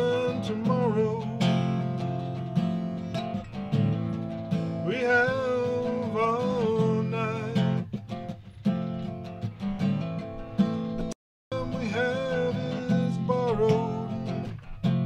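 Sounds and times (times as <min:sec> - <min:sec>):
man singing: 0:00.0 - 0:02.1, 0:04.8 - 0:07.9, 0:11.5 - 0:14.6
acoustic guitar strumming: 0:00.0 - 0:15.0.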